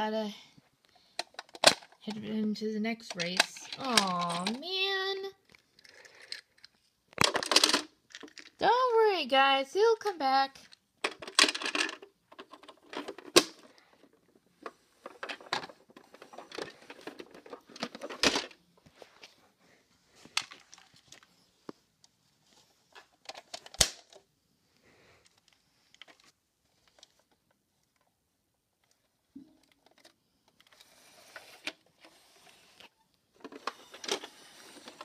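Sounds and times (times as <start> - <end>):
plastic toys clicking and rattling: 1.1 - 2.2, 3.0 - 8.7, 10.6 - 18.6, 20.3 - 21.3, 22.9 - 24.3, 33.4 - 35.0.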